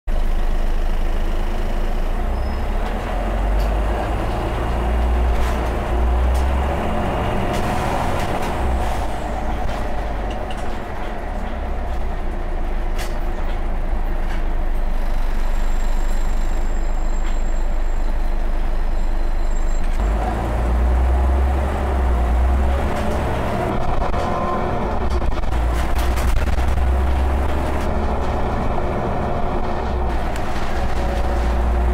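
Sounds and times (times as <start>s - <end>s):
bus diesel engine rumble: 0.1s - 31.9s
interior clicks and rattles: 3.6s - 14.9s, 22.7s - 31.9s.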